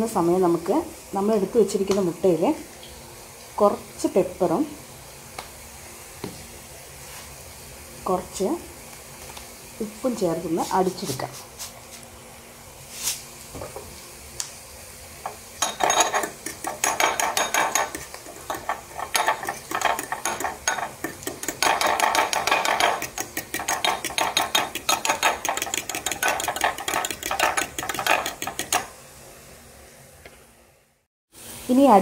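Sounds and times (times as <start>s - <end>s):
fork ticking against glass bowl: 15.8s - 28.8s.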